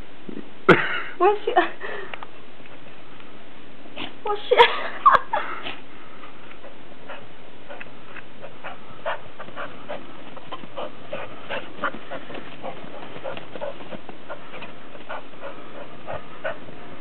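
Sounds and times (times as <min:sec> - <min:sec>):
dog panting: 0:05.6 - 0:16.8.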